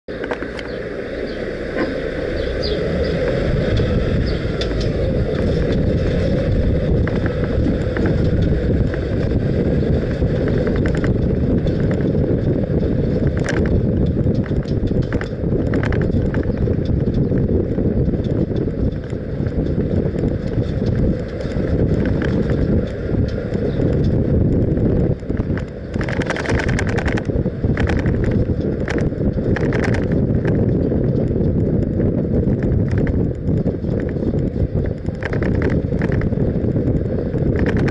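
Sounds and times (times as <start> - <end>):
road noise: 0.0 - 37.9
wind rumbling on microphone: 0.0 - 37.9
short clicks and rattles: 25.4 - 30.6, 35.0 - 36.3, 37.5 - 37.9.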